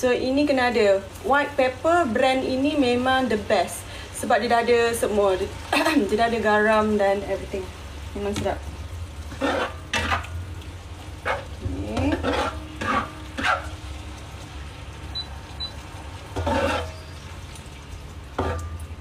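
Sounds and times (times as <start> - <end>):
spatula scraping a wok: 9.2 - 10.4, 11.2 - 13.9, 16.2 - 17.3, 18.3 - 18.8.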